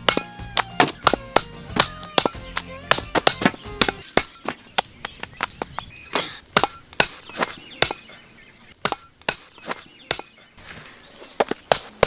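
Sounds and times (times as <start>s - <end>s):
knife chopping dried fish on wood: 0.0s - 4.3s.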